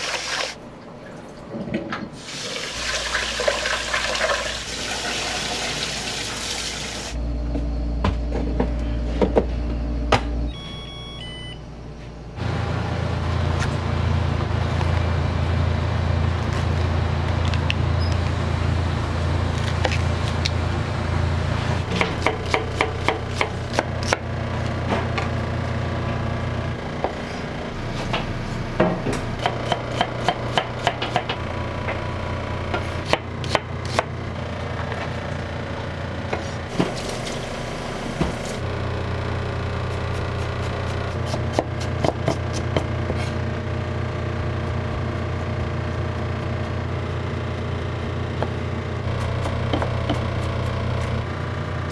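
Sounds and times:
steady low hum: 7.2s - 51.9s
knife chopping on cutting board: 29.4s - 31.3s, 40.0s - 43.3s, 49.4s - 51.1s.

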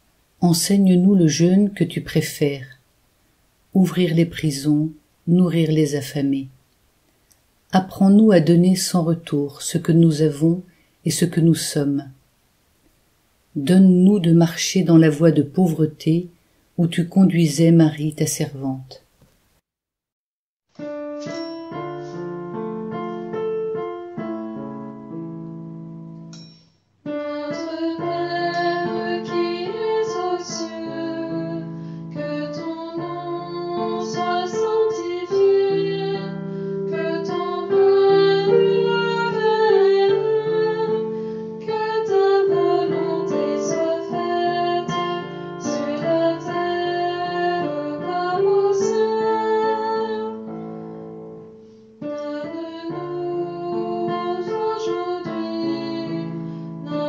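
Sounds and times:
piano music: 20.8s - 57.0s.

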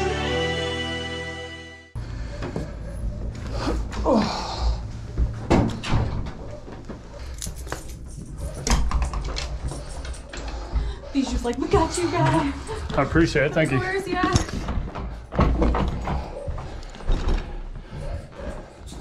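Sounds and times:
doors opening and closing: 5.4s - 11.0s.

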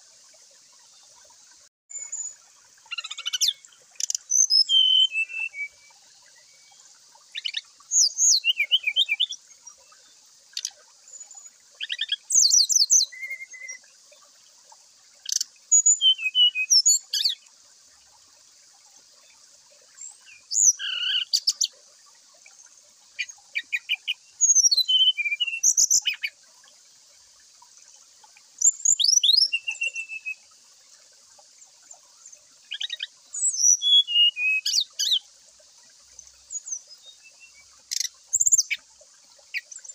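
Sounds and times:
bird twittering and whistling: 1.9s - 6.0s, 7.4s - 9.4s, 10.6s - 13.8s, 15.2s - 17.4s, 20.0s - 21.7s, 23.2s - 26.3s, 28.6s - 30.4s, 32.7s - 35.2s, 36.5s - 38.8s.

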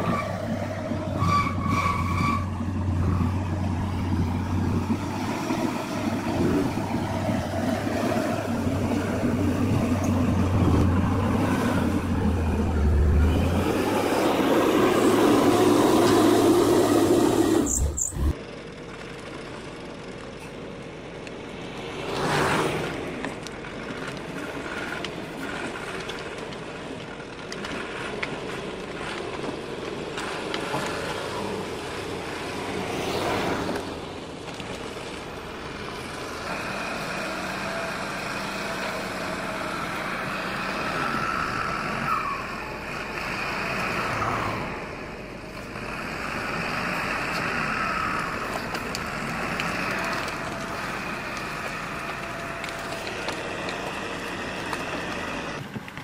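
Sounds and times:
cars passing close by: 0.0s - 18.4s, 21.0s - 26.8s, 27.6s - 56.0s
steady engine running: 2.6s - 20.3s.

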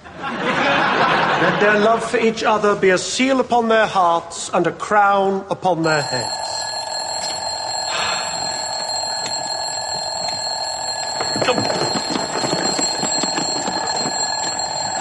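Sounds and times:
alarm clock ringing: 5.8s - 15.0s
box rustling and handling: 11.2s - 15.0s.

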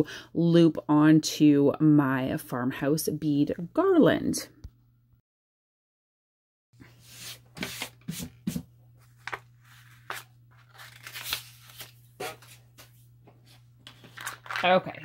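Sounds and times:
sandpaper rustling and scraping: 6.9s - 8.4s.

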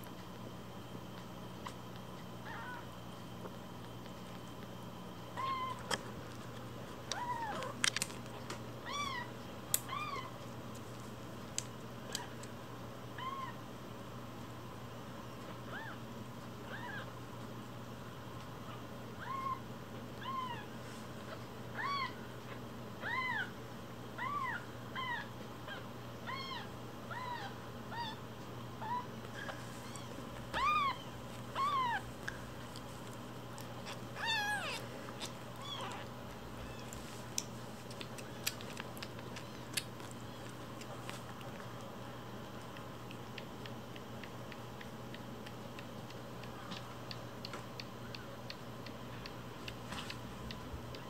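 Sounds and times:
kitten mewing: 28.8s - 32.1s, 33.8s - 36.9s.

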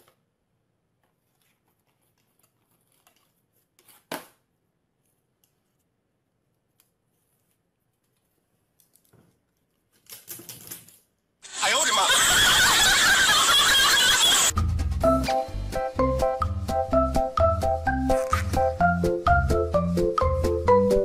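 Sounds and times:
rustling: 6.6s - 11.1s.

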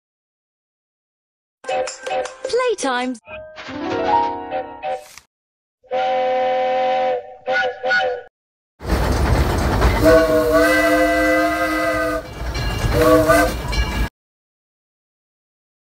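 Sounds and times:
steam locomotive whistle: 5.8s - 8.3s, 10.0s - 13.8s
train whistle blasts: 5.9s - 8.3s, 10.0s - 12.3s, 13.0s - 13.7s.

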